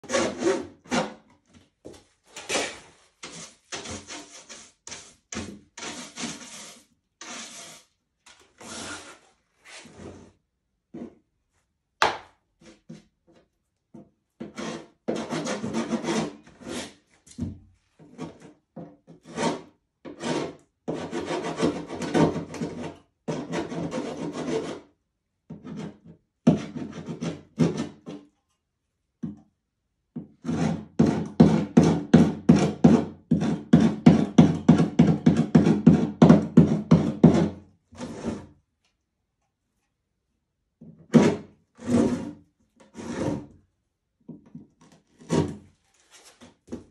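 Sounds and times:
metal scraper scraping plastic film: 0:02.2 - 0:10.3, 0:41.1 - 0:43.5, 0:44.8 - 0:46.9.

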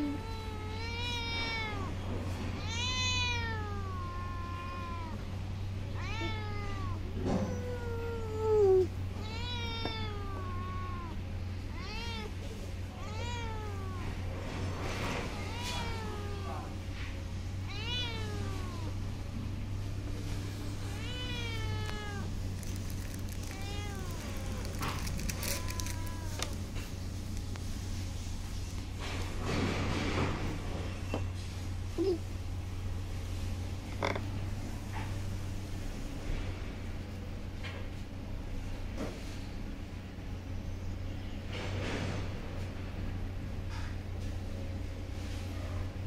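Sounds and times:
young cat meowing: 0:00.0 - 0:05.3, 0:05.9 - 0:14.3, 0:15.0 - 0:16.8, 0:17.6 - 0:19.0, 0:20.7 - 0:26.8.

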